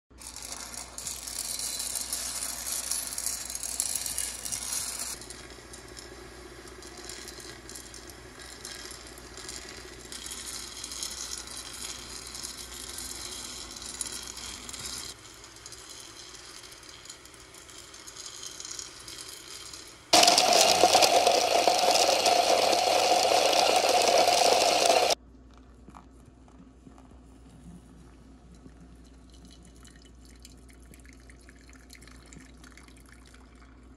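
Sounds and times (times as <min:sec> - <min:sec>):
coffee beans rattling in roaster: 0:00.1 - 0:25.2
water pouring onto coffee grounds: 0:20.2 - 0:25.2.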